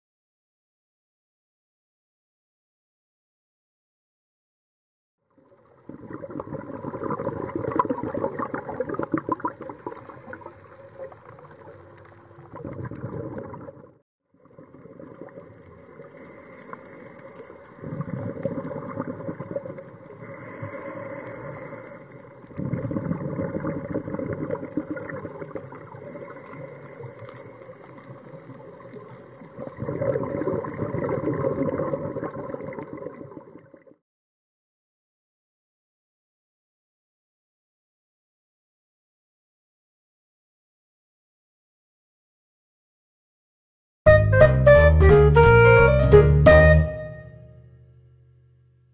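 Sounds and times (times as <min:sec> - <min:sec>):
underwater rushing water: 0:05.4 - 0:34.0.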